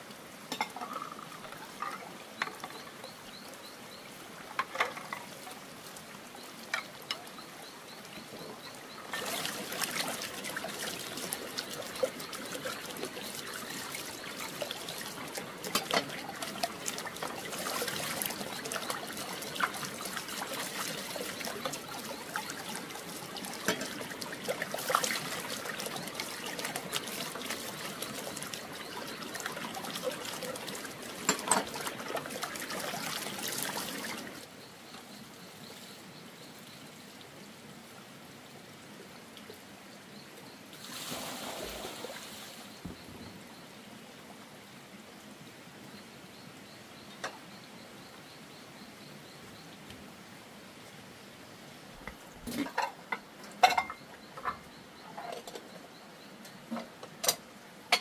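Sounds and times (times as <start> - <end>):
water trickling and splashing: 0.0 - 58.0
faint hiss: 34.9 - 52.9.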